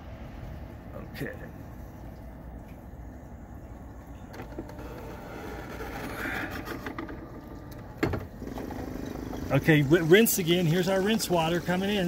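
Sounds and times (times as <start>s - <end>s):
rotary film processor motor hum: 4.3s - 12.0s.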